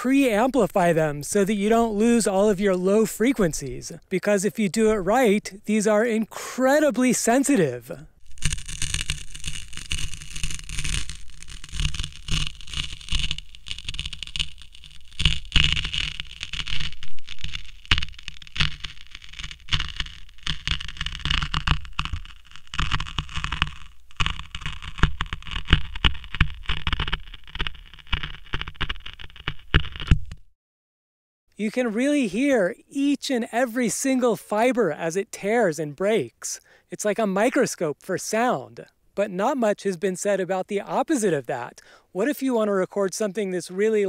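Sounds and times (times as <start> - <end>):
paper towel tearing: 8.2 - 30.4.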